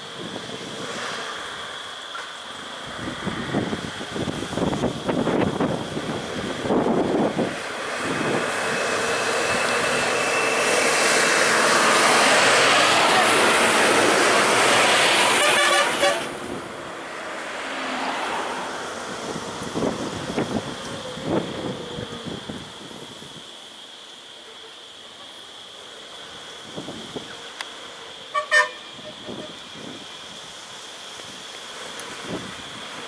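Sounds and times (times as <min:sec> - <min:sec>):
bus driving past: 0:00.0 - 0:33.0
horn toots: 0:14.6 - 0:16.4, 0:28.3 - 0:29.6.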